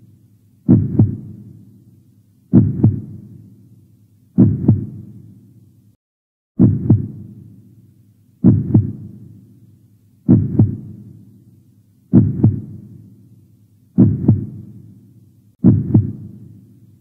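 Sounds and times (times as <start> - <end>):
heartbeat: 0.7 - 1.4, 2.5 - 3.2, 4.4 - 5.1, 6.6 - 7.2, 8.4 - 9.1, 10.3 - 11.0, 12.1 - 12.8, 14.0 - 14.7, 15.6 - 16.4.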